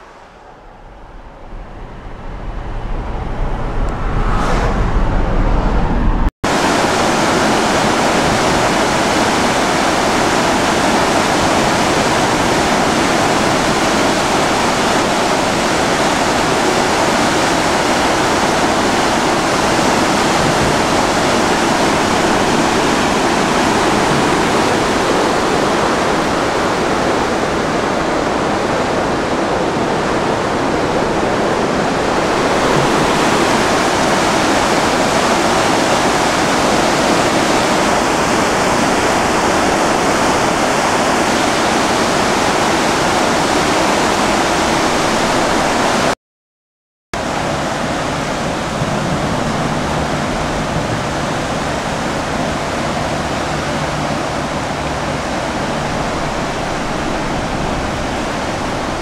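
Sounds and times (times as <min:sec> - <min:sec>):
river water rushing: 0:00.0 - 0:03.3, 0:06.4 - 0:46.2, 0:47.2 - 0:59.0
car road noise and engine: 0:00.0 - 0:07.9.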